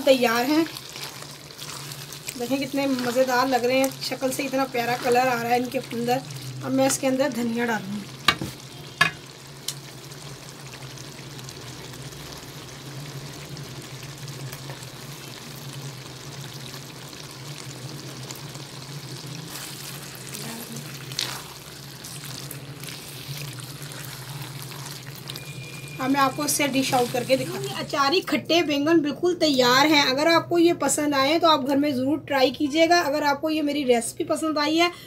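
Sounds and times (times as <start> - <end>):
spatula scraping: 0.0 - 7.1, 19.5 - 27.8
curry sizzling in a wok: 0.0 - 28.6.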